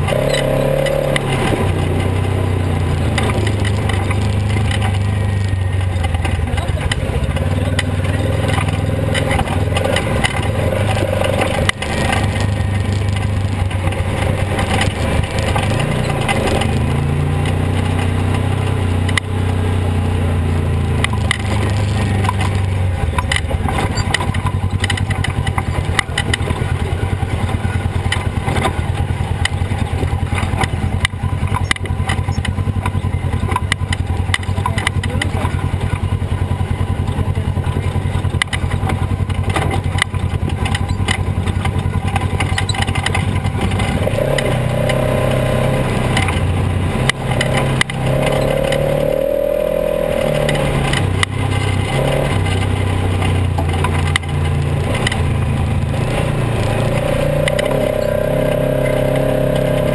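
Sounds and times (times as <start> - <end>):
rattles and knocks over rocks: 0.0 - 19.3, 20.8 - 59.9
off-road vehicle engine running: 0.0 - 59.9.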